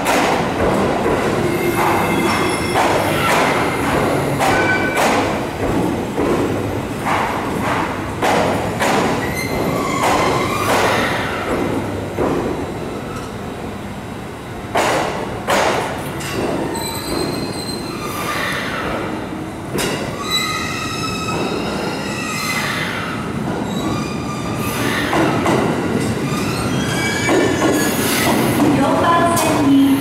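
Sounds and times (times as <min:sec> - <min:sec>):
train rolling noise: 0:00.0 - 0:30.0
train wheels squealing: 0:01.4 - 0:05.0, 0:16.7 - 0:18.9, 0:20.1 - 0:25.3, 0:26.2 - 0:28.4.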